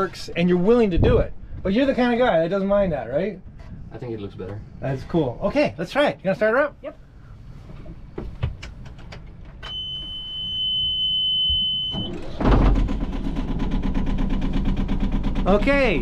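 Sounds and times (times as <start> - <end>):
boat engine starting and running: 11.8 - 16.0.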